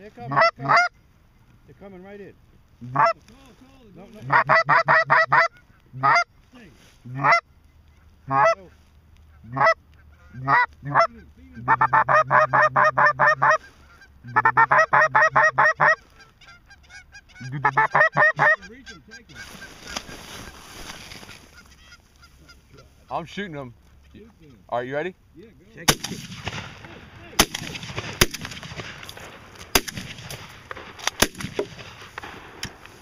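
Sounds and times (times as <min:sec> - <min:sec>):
goose call honks and clucks: 0:00.0 - 0:01.0, 0:02.8 - 0:03.3, 0:04.0 - 0:24.8
rustling: 0:01.0 - 0:04.5, 0:05.4 - 0:12.0, 0:15.8 - 0:24.8, 0:25.5 - 0:33.0.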